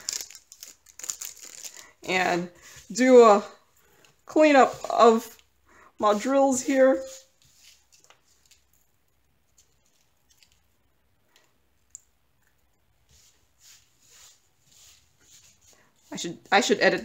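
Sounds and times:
hands rustling: 0:06.0 - 0:10.7.

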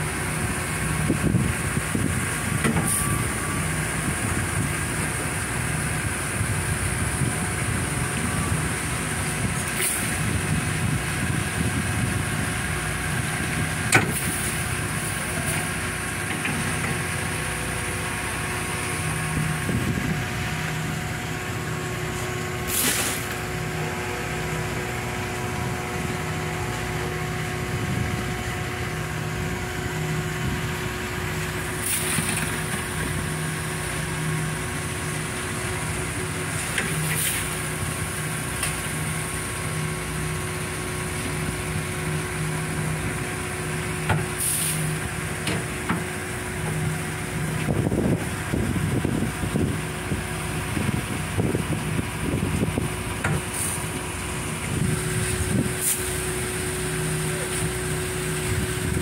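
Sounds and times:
machinery humming: 0:00.0 - 0:59.0
short hissing rushes: 0:22.6 - 0:23.4.

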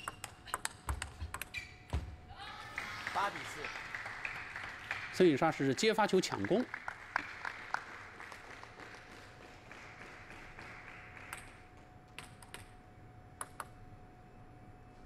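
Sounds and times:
faint steady hum: 0:00.0 - 0:15.0
scattered clapping: 0:02.7 - 0:11.8
table tennis ball ticks: 0:13.4 - 0:13.7.

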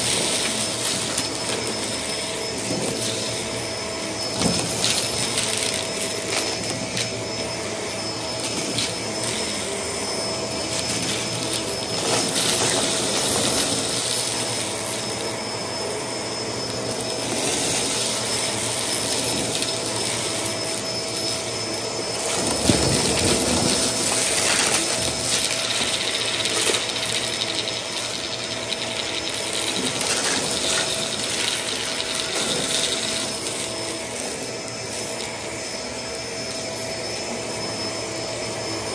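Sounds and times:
vacuum cleaner whining: 0:00.0 - 0:38.9
sequins clattering into vacuum: 0:22.2 - 0:33.7.

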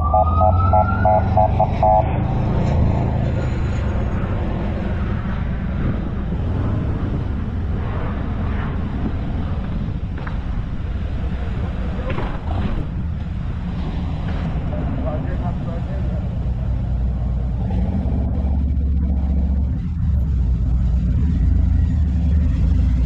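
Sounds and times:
car road and engine noise: 0:00.0 - 0:23.0.

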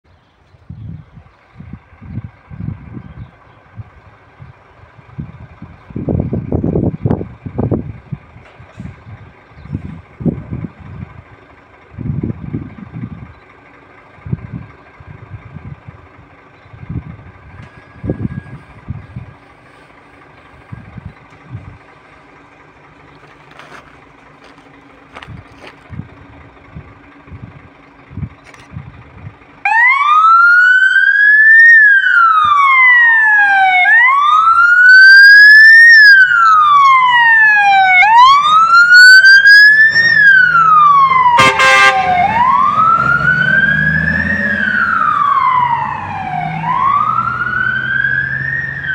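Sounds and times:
diesel engine idling: 0:00.1 - 0:48.9
siren wailing: 0:17.4 - 0:18.9, 0:29.6 - 0:48.9
air horn blast: 0:41.2 - 0:42.7.

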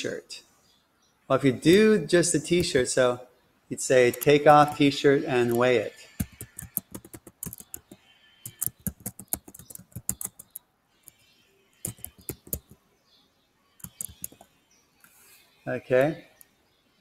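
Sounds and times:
computer keyboard typing: 0:04.0 - 0:04.8, 0:05.5 - 0:10.6, 0:11.8 - 0:12.8, 0:13.8 - 0:14.5.

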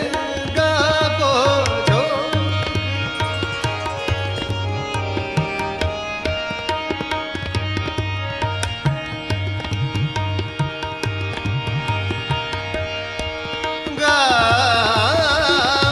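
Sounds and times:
tabla rhythm: 0:00.0 - 0:15.9
held melodic notes: 0:01.4 - 0:13.9.

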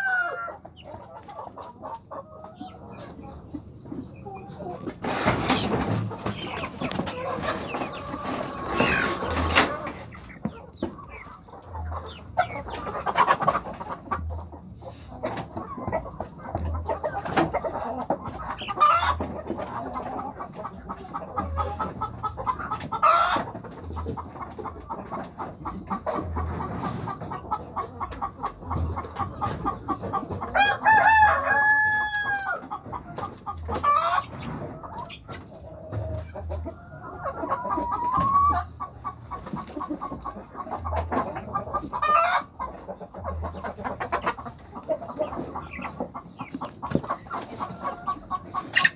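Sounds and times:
rooster crowing: 0:00.0 - 0:00.6
chickens clucking: 0:00.0 - 0:48.9.

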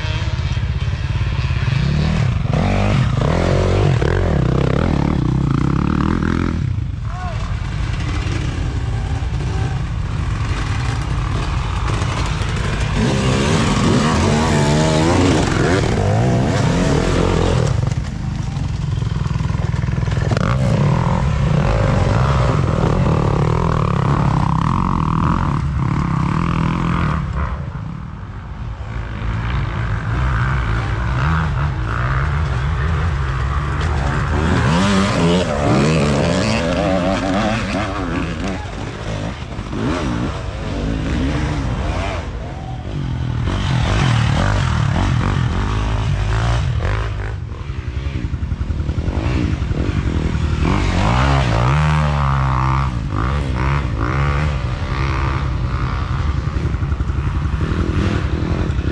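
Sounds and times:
dirt bike engines revving: 0:00.0 - 0:58.9.

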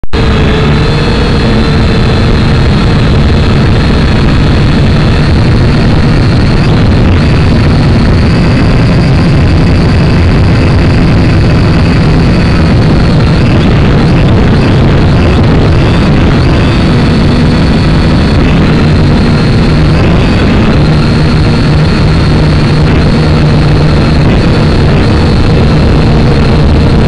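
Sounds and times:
drone propellers whining: 0:00.0 - 0:27.0.

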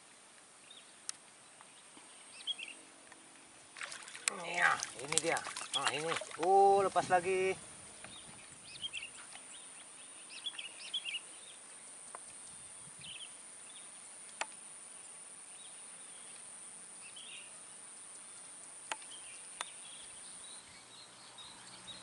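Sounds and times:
bird chirps: 0:08.0 - 0:11.6.

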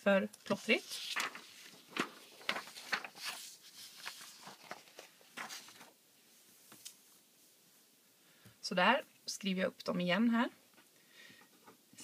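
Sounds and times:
paper rustling: 0:00.4 - 0:06.0.

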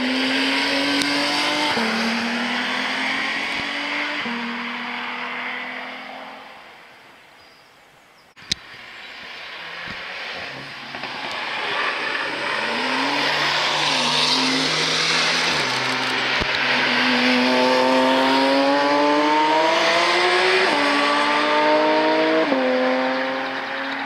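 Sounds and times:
car engine accelerating hard: 0:00.0 - 0:06.4, 0:09.2 - 0:24.0.

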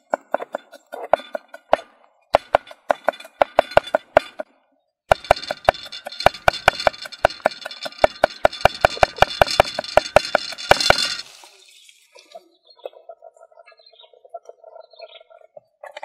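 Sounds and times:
knife chopping on wooden board: 0:00.1 - 0:04.5.

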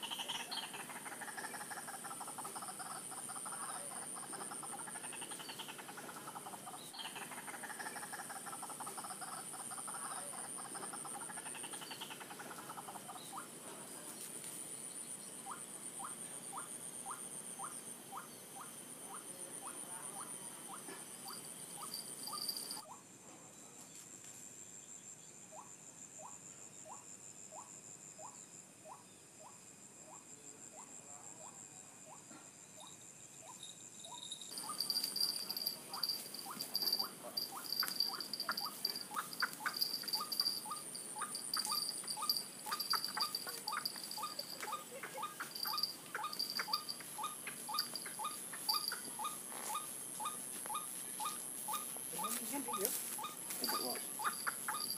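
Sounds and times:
bird croaking calls: 0:00.0 - 0:13.6, 0:15.4 - 0:23.0, 0:34.5 - 0:54.9
insects buzzing: 0:00.0 - 0:23.1, 0:23.9 - 0:54.9.

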